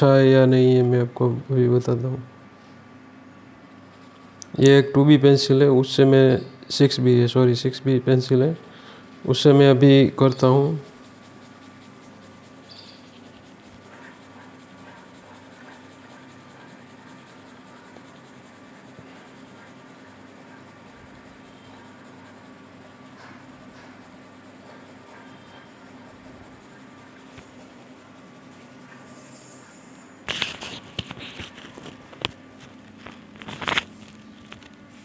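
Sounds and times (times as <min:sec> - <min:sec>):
pencil scratching on paper: 0:03.8 - 0:04.4, 0:07.8 - 0:29.4, 0:30.3 - 0:31.9.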